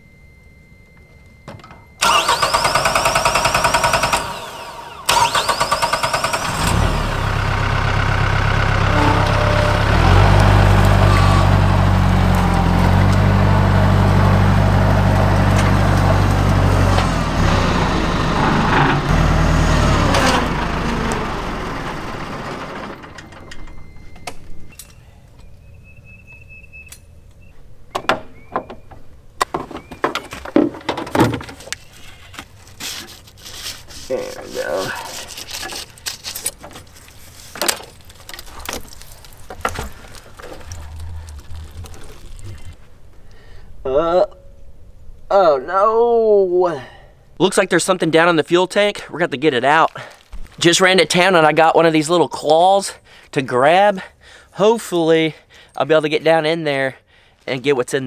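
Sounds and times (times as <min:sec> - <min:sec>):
tractor engine revving: 0:02.0 - 0:23.8, 0:38.1 - 0:43.1.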